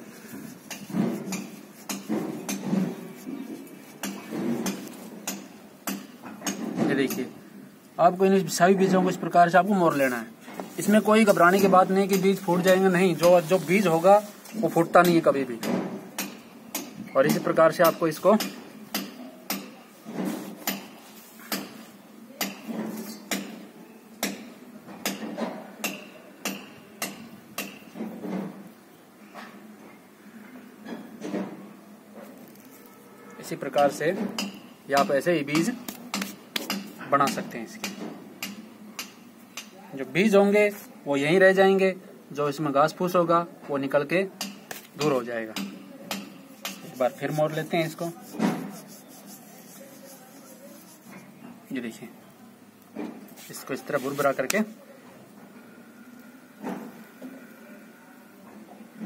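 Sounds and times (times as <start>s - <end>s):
dry rustle: 9.8s - 15.0s, 46.6s - 51.4s, 53.3s - 54.7s
dry seed heads crackling: 10.7s - 15.2s, 46.5s - 51.4s.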